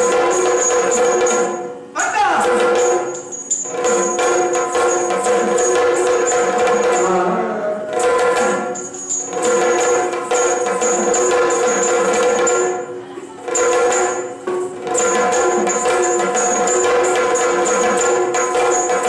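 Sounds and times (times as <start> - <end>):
bright metallic jingling: 2.6 - 7.2, 8.6 - 12.8.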